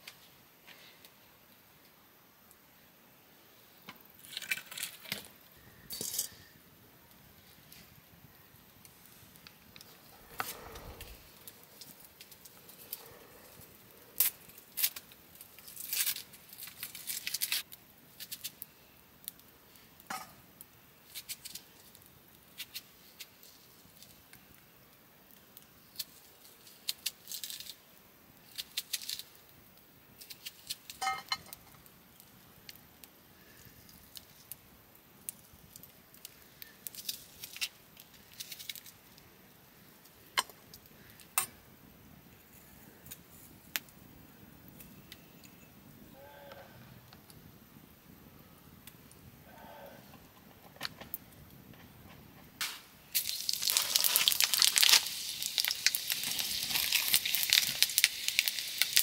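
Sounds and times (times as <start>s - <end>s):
small hard objects clinking: 53.1s - 59.0s.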